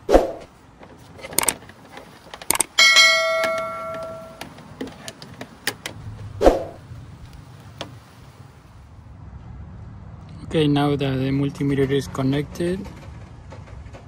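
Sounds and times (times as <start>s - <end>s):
sharp clicks: 1.2s - 1.6s, 2.4s - 2.8s
notification bell ding: 2.8s - 4.4s.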